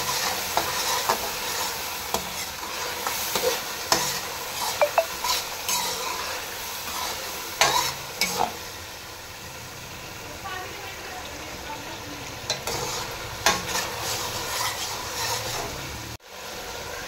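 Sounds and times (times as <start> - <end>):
food sizzling in oil: 0.0 - 17.0
spoon clinking against pan: 4.8 - 5.1
metal spoon scraping pan: 12.5 - 15.8.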